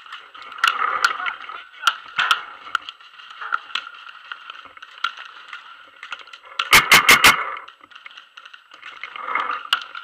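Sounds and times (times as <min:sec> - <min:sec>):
paintball marker shots: 0:06.7 - 0:07.5.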